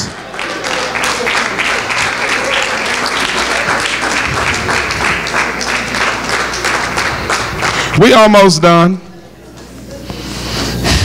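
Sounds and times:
congregation clapping: 0.0s - 8.7s.

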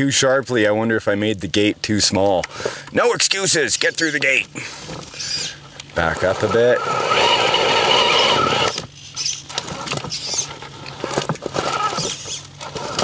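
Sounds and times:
electric motor whining: 6.1s - 13.0s.

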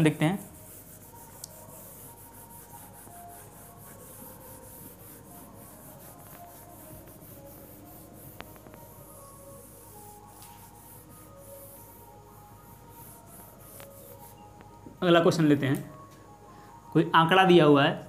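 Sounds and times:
whiteboard being wiped: 0.0s - 12.0s, 12.7s - 14.4s.

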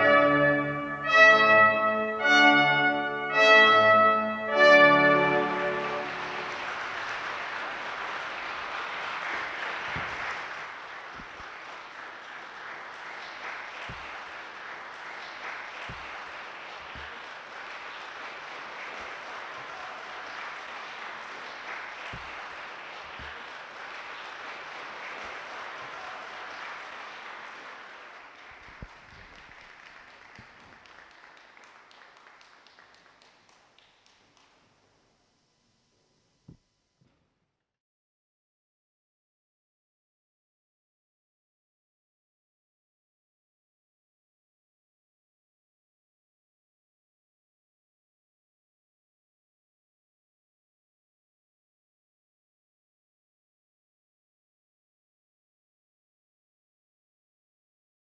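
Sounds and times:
audience applauding: 0.0s - 34.8s.

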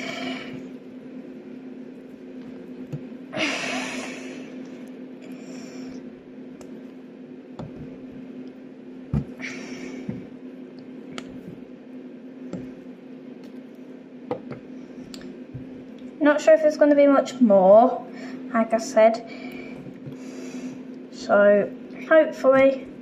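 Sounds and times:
steady low hum: 0.0s - 23.0s
soft thuds: 9.1s - 9.4s.

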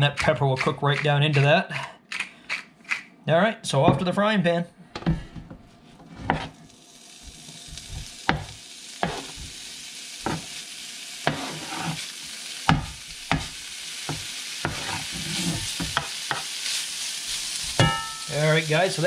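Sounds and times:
bacon sizzling in skillet: 6.1s - 19.0s
knife scraping plastic cutting board: 11.3s - 12.0s, 14.6s - 15.8s.

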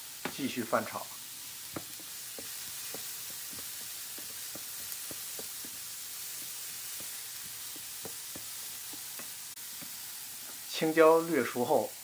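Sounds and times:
vegetables sizzling in a frying pan: 0.0s - 12.0s
wooden spatula knocking on pan: 1.7s - 10.0s.

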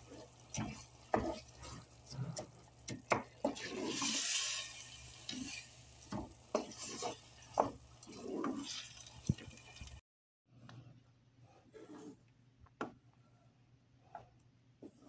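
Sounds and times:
oil sizzling in a pot: 0.0s - 10.0s.

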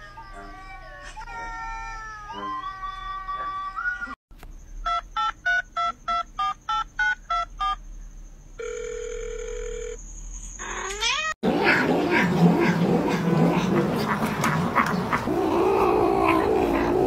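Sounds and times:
steady telephone tone: 8.6s - 10.0s.

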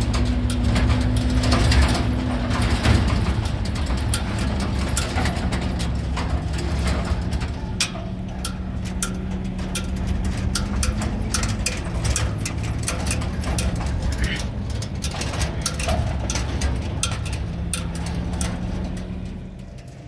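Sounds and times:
sharp clicks and rattles: 0.0s - 20.0s
vehicle engine running: 0.0s - 20.0s.

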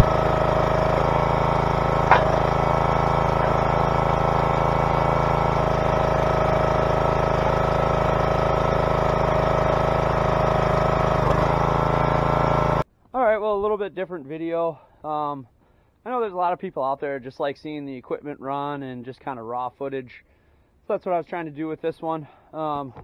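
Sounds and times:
engine idling: 0.0s - 12.8s.

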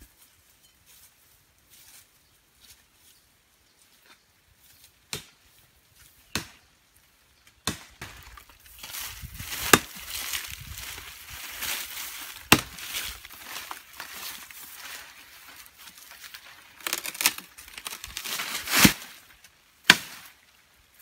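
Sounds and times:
dry grass and leaves rustling: 0.0s - 21.0s
machete chopping tree trunk: 5.1s - 5.3s, 6.3s - 6.6s, 7.6s - 8.4s, 9.5s - 10.4s, 12.4s - 13.0s, 16.8s - 19.1s, 19.8s - 20.3s.

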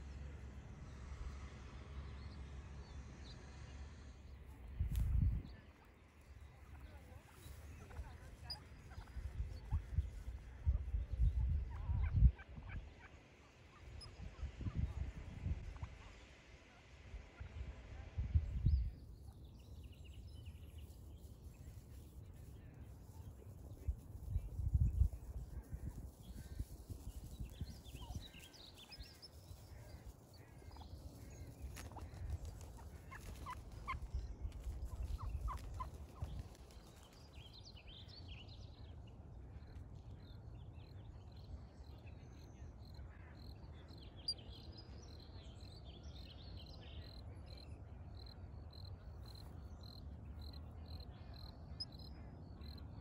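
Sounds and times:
turkey gobbling: 31.8s - 34.0s.

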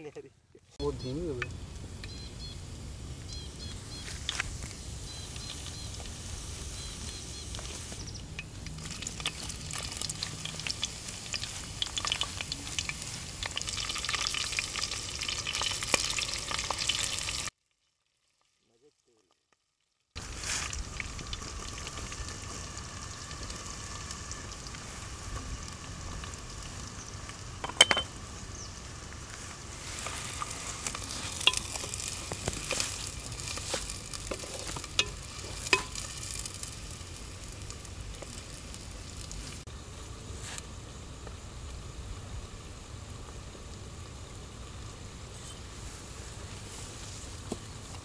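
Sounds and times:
onions sizzling in hot oil: 0.9s - 18.6s, 20.2s - 48.0s.

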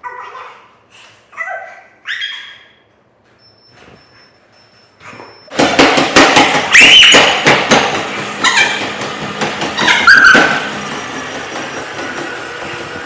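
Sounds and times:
feet thumping on treadmill: 5.0s - 13.0s.

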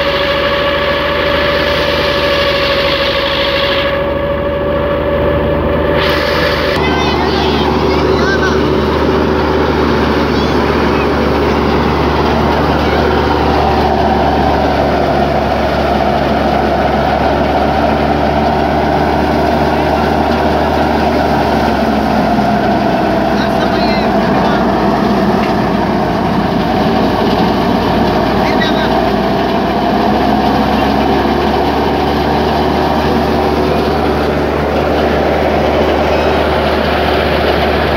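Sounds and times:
thresher machine drone: 0.0s - 37.9s
tractor diesel engine hum: 0.0s - 37.9s.

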